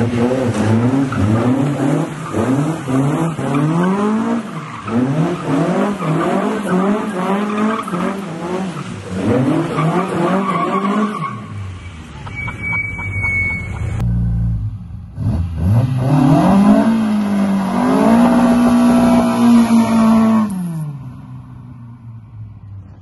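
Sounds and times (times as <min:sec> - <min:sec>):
car engine revving hard: 0:00.0 - 0:11.1, 0:15.2 - 0:20.8
tyres skidding: 0:00.0 - 0:23.0.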